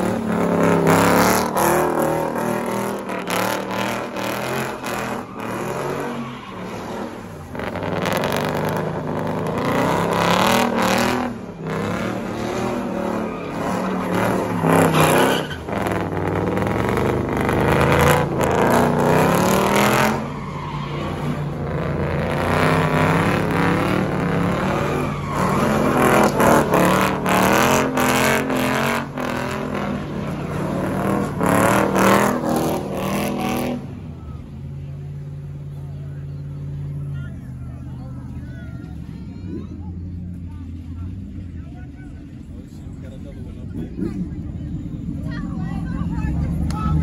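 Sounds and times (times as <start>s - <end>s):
car engine revving hard: 0.0s - 20.4s, 21.0s - 34.0s
tyres squealing: 12.8s - 16.7s, 22.6s - 28.8s.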